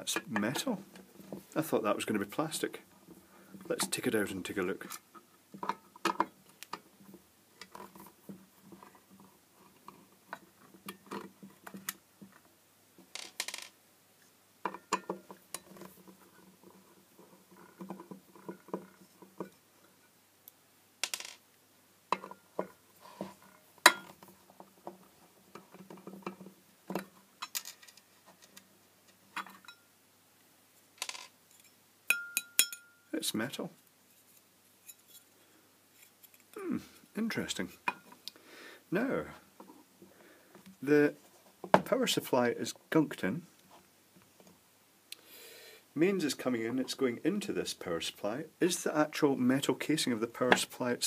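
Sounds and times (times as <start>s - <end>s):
light metallic clinks: 29.6s - 29.9s, 31.6s - 33.1s.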